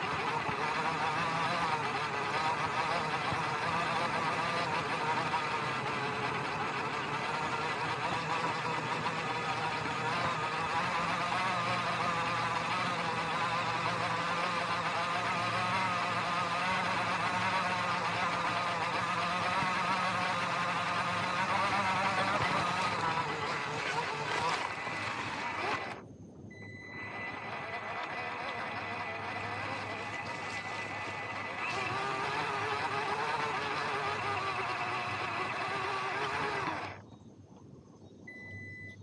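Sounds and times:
electric motor whining: 0.0 - 26.0, 26.6 - 37.0.

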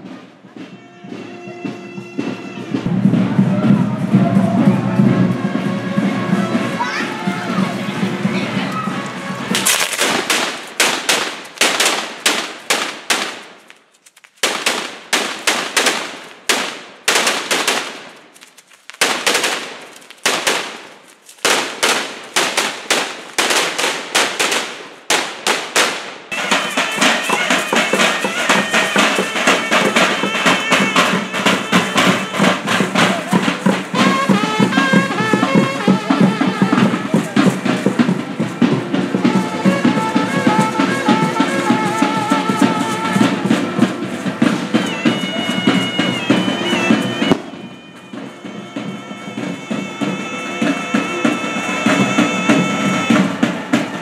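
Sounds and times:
music with drums: 0.0 - 13.6, 25.8 - 54.0
firecrackers crackling: 2.8 - 54.0.

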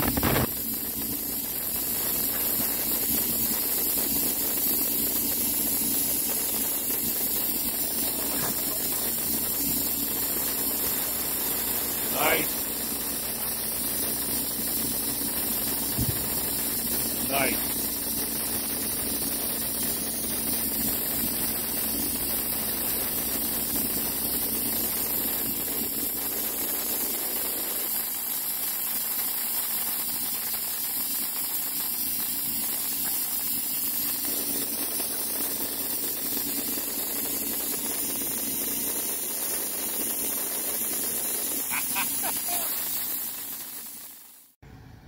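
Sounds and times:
diesel engine humming: 5.3 - 19.6.

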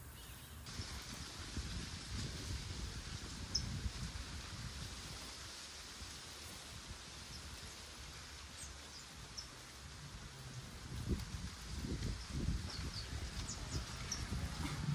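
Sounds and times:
dry plant fibre rustling: 0.6 - 14.9.

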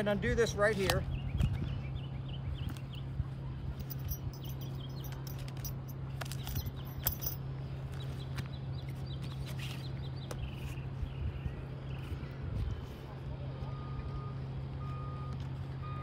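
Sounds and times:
birds chirping: 0.0 - 3.2, 3.8 - 12.4.

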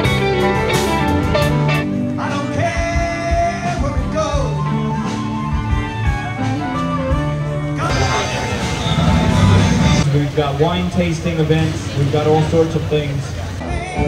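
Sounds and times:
live rock band playing: 0.0 - 10.1
person singing: 2.2 - 5.2, 13.6 - 14.0
drum hits: 7.8 - 10.1.

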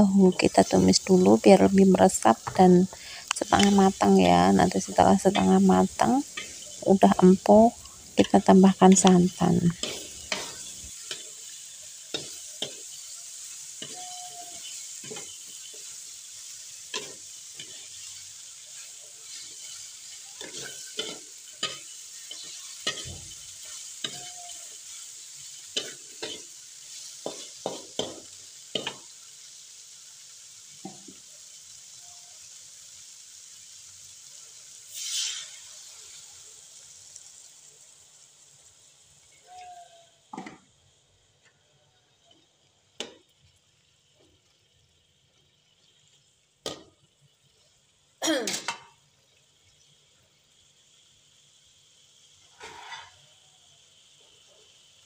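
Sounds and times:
loud hiss: 0.0 - 29.2, 34.8 - 36.4
food sizzling in a wok: 0.0 - 55.0
metal ladle scraping a wok: 5.3 - 15.9, 16.9 - 25.2, 34.9 - 35.9, 52.5 - 53.2.

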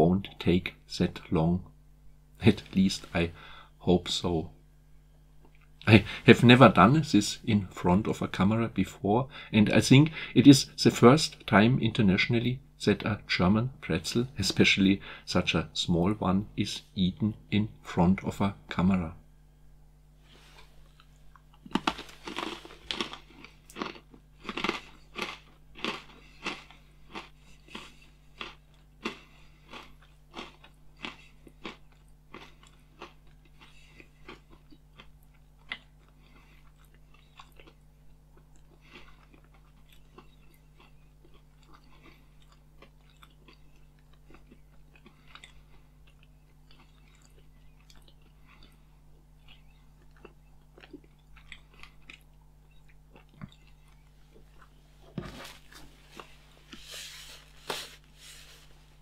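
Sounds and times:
man chewing pretzel: 20.3 - 59.0.

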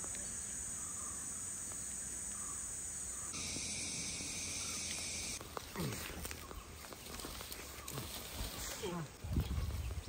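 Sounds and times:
high-pitched insect chorus: 0.0 - 5.4
insect buzz: 0.0 - 5.4.

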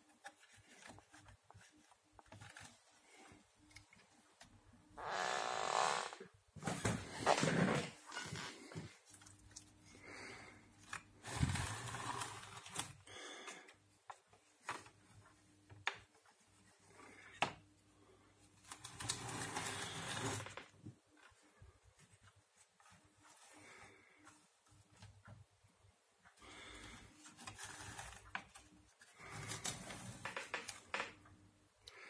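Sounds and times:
plastic parts scraping and rattling: 10.7 - 13.1, 18.4 - 24.4, 26.7 - 31.2.

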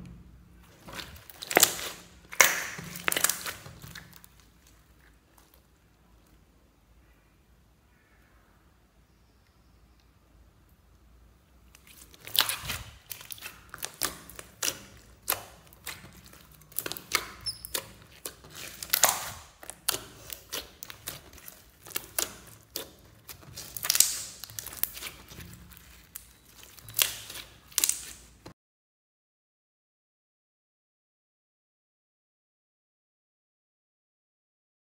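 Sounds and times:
slime squeezed by hand: 0.6 - 5.6, 11.7 - 28.4.

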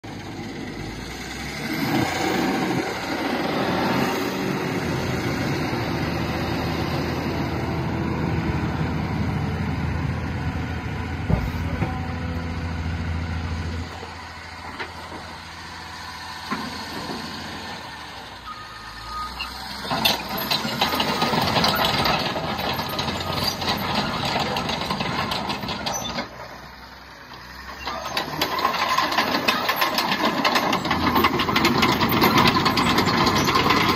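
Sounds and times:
diesel engine idling: 2.5 - 19.7.

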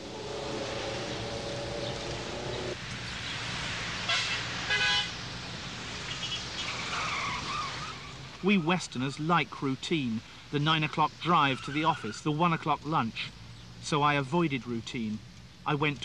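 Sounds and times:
traffic noise: 0.0 - 16.0
car horn blasts: 4.1 - 5.1.

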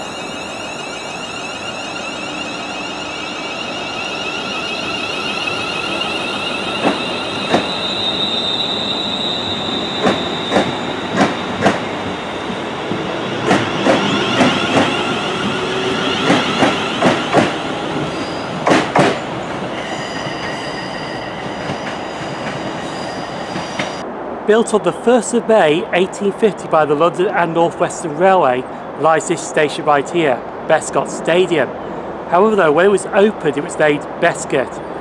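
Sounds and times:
train traction motor whine: 0.0 - 24.0.

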